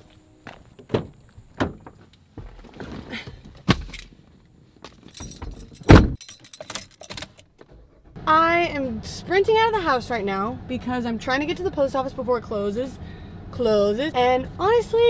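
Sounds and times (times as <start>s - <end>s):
key ring jangling: 5.0s - 7.5s
loud deep thump: 5.9s - 6.2s.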